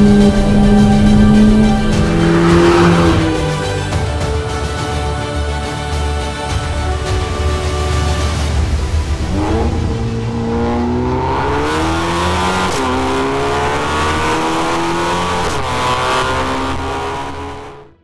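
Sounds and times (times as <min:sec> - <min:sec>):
car engine accelerating hard: 0:00.0 - 0:04.0, 0:09.0 - 0:18.0.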